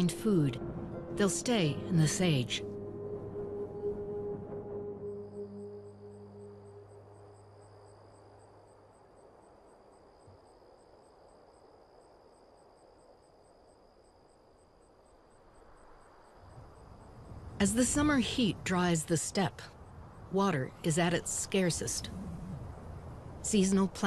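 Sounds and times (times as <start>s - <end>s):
low ambient music: 0.0s - 9.2s
faint insects chirping: 0.0s - 24.0s.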